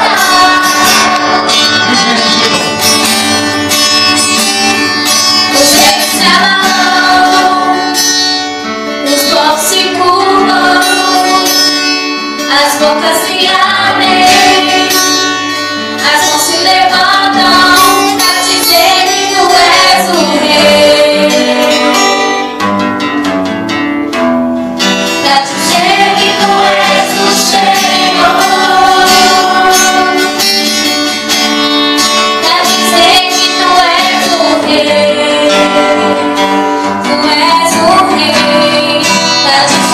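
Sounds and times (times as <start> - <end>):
woman singing gospel song: 0.0 - 1.2, 5.5 - 8.0, 9.0 - 11.7, 12.4 - 15.1, 16.0 - 22.3, 25.2 - 30.4, 32.4 - 39.9
acoustic guitar: 0.0 - 39.9.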